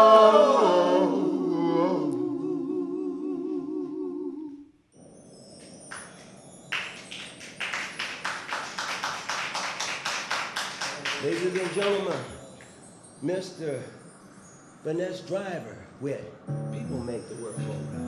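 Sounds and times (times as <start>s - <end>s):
male vocal group holding chord: 0.0s - 4.4s
people clapping: 5.9s - 12.7s.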